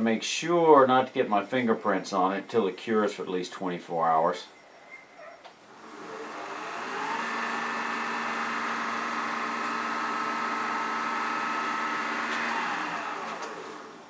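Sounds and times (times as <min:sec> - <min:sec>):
lathe motor hum: 0:05.7 - 0:14.0.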